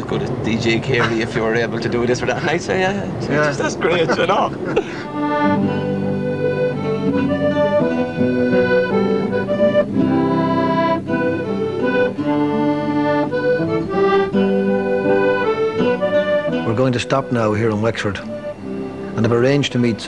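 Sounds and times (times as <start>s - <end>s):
accordion playing a tune: 4.8s - 20.0s.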